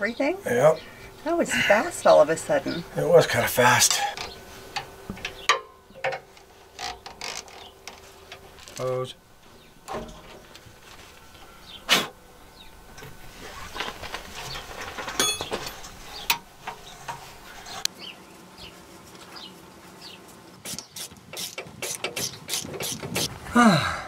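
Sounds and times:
ratchet wrench clicking: 20.7 - 23.3.

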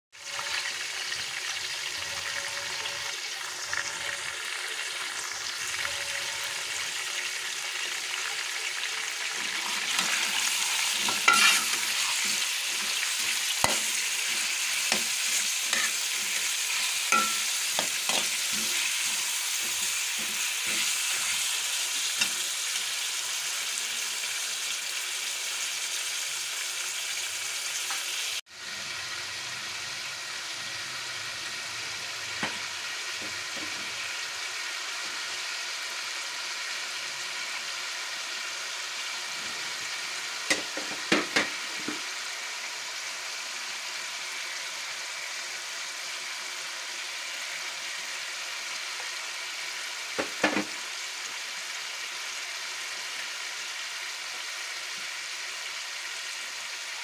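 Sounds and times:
chicken sizzling in hot oil: 0.1 - 57.0
metal spoon scraping a pot: 9.6 - 22.4.

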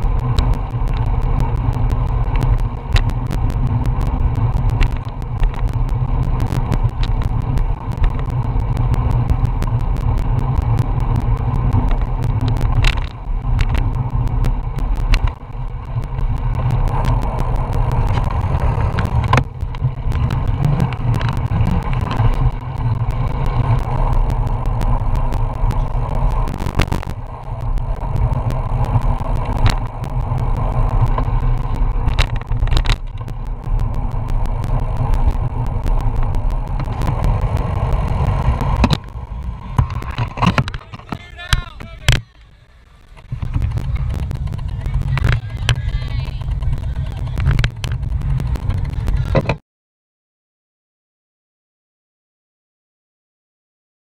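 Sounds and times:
bicycle clicks and rattles: 0.0 - 42.1, 43.1 - 49.5
wind buffeting microphone: 43.0 - 49.4.

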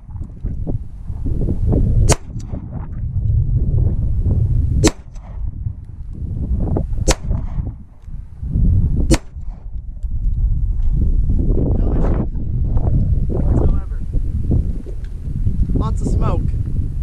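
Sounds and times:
pistol shots: 2.1 - 2.6, 4.8 - 5.4, 7.0 - 7.6, 9.1 - 9.6.

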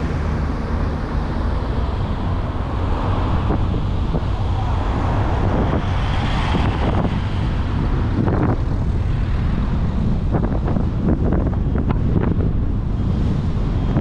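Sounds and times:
car engine and road rumble: 0.0 - 14.0
wind gusting on microphone: 0.0 - 14.0.

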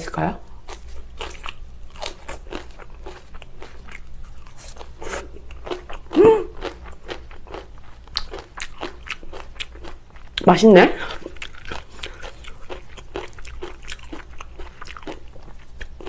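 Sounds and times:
crunching and wet chewing: 0.6 - 10.4, 11.0 - 16.0
person humming: 6.2 - 6.6.

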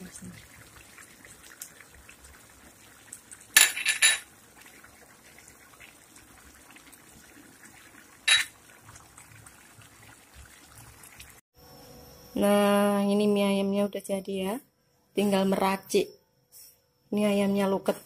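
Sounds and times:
glass bowl clinking against frying pan: 3.6 - 4.3, 8.3 - 8.6.

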